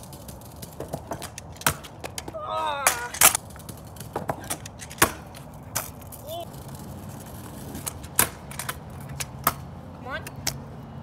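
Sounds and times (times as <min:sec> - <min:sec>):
kick scooter clattering on concrete: 0:00.0 - 0:10.6
person exclaiming: 0:02.3 - 0:03.3, 0:06.2 - 0:06.5.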